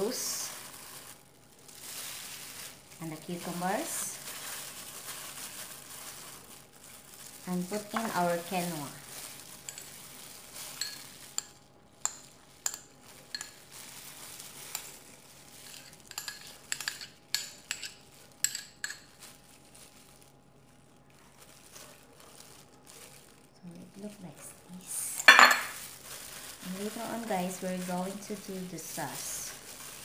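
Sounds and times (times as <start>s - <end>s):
spoon clinking on ceramic bowls: 10.8s - 13.6s, 15.7s - 19.0s, 25.2s - 25.8s.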